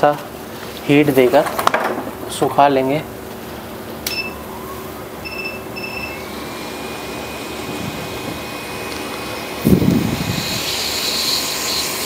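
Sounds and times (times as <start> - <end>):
blower whine: 3.1 - 12.0
short electronic beeps: 4.1 - 4.4, 5.2 - 6.3
rush of air: 9.6 - 10.7.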